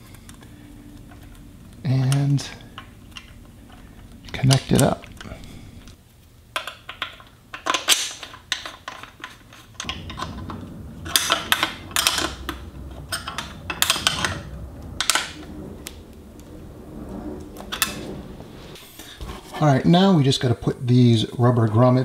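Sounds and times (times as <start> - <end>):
low rubbing rumble: 0.0 - 6.0, 9.7 - 20.0.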